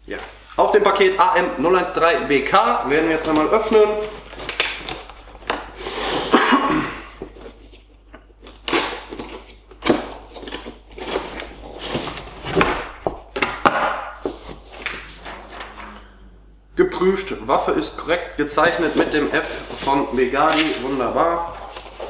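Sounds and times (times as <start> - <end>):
paper sheet rustling: 14.2 - 16.0, 18.6 - 22.0.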